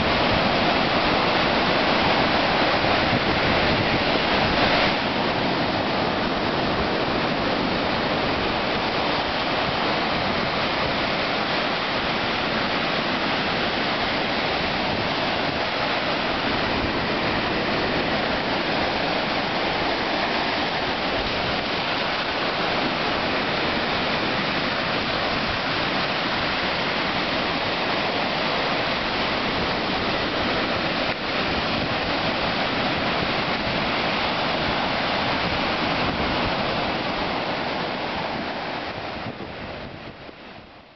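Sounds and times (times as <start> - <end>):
ocean surf washing on sand: 0.0 - 40.9.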